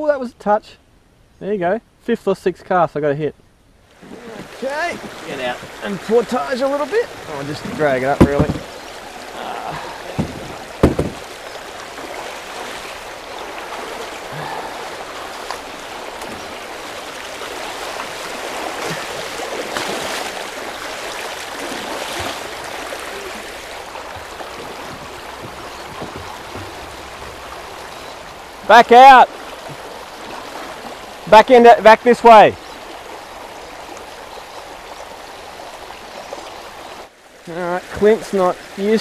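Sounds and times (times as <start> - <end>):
water rushing over stones: 3.9 - 39.0
short knocks: 7.5 - 8.9, 10.1 - 11.4, 23.9 - 28.3.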